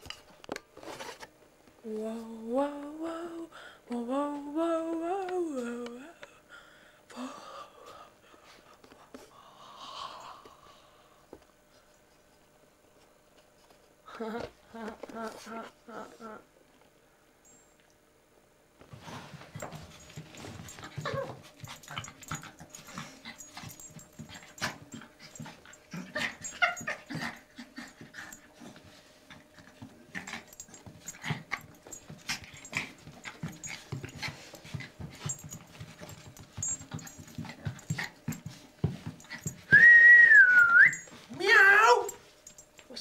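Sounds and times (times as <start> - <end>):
dog scuffling and snuffling: 18.9 - 39.7.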